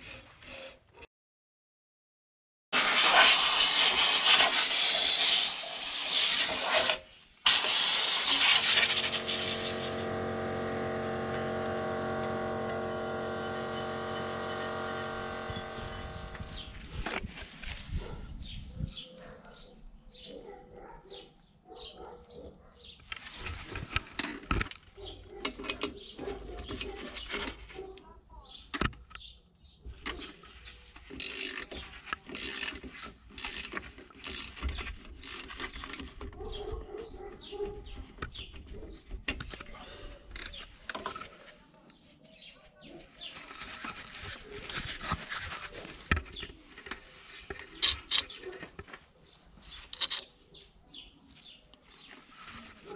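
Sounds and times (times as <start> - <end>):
socket ratchet clicking: 31.1 - 31.7, 32.3 - 34.6, 35.2 - 36.0.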